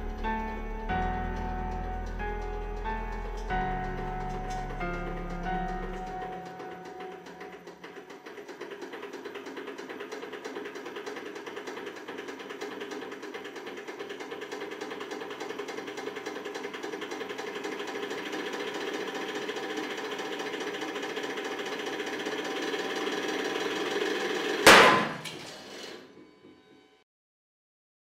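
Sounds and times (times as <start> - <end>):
hydraulic press running: 0.0 - 26.8
loud bang of metal breaking: 24.6 - 25.6.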